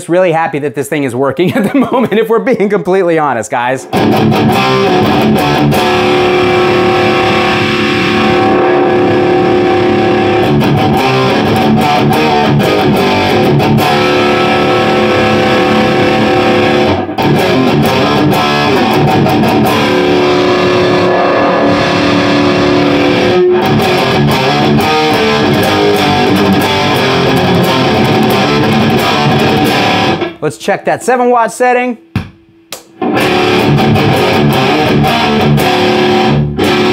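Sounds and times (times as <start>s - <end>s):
distorted electric guitar riffing: 3.8s - 30.5s, 32.8s - 36.9s.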